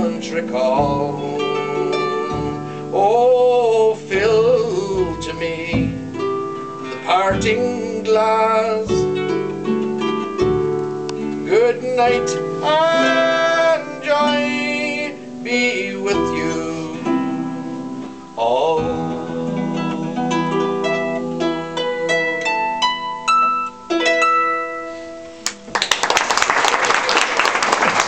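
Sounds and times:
harp playing slow song: 0.0 - 25.6
audience applause: 25.4 - 28.0.

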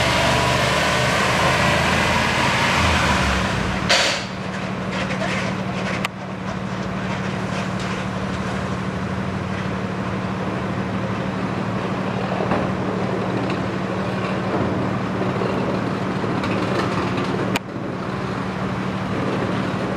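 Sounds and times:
low drone: 0.0 - 4.6
truck engine driving away: 0.0 - 19.9.

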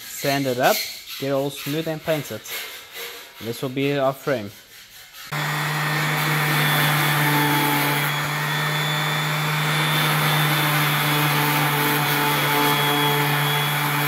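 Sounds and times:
orbital sander sanding wood: 3.4 - 14.0.

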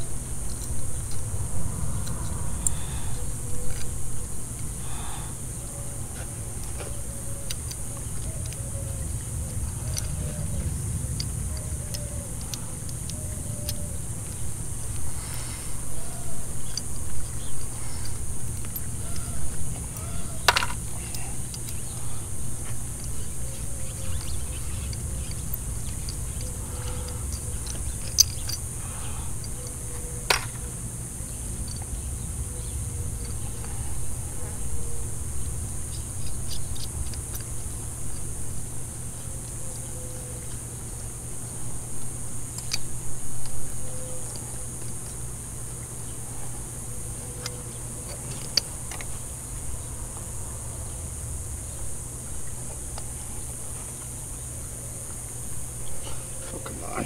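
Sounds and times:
low rumble: 0.0 - 6.8
high-pitched insect buzz: 0.0 - 57.0.

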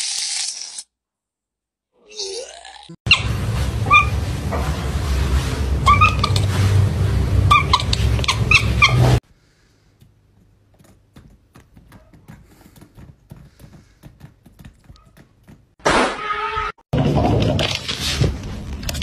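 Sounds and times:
loud low hum: 3.1 - 9.2
cat chirping: 5.8 - 6.5, 7.5 - 9.2.

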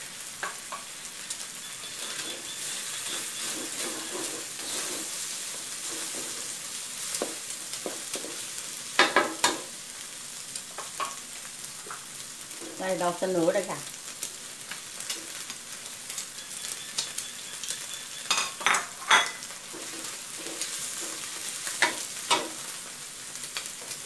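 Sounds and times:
food sizzling in a wok: 0.0 - 24.0
wooden spatula scraping wok: 1.6 - 9.7, 17.8 - 23.0.

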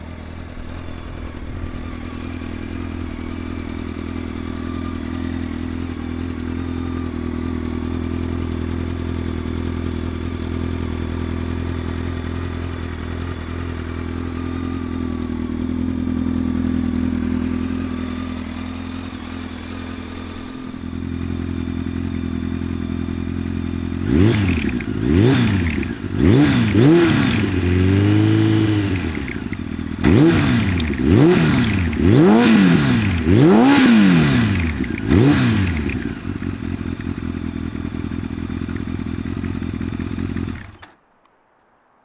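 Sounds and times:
motorcycle engine idling and revving: 0.0 - 41.0.

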